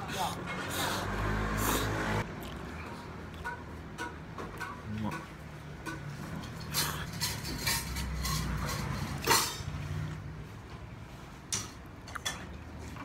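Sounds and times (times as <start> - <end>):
noodles slurped and chewed: 0.7 - 3.4.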